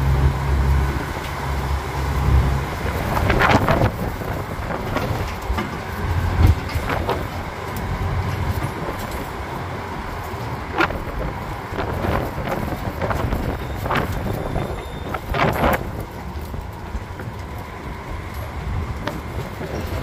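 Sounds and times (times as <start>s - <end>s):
carriages rattling knocks: 0.0s - 20.0s
land train rumble: 0.0s - 20.0s
wind on microphone: 0.0s - 20.0s.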